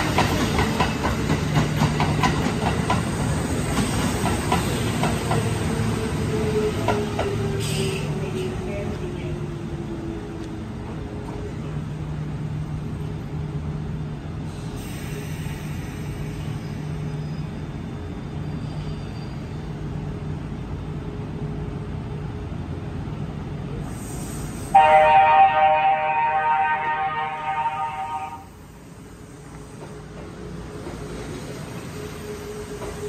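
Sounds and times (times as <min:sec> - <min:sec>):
train rolling with low hum: 0:00.0 - 0:33.0
train horn long blast: 0:24.7 - 0:28.6.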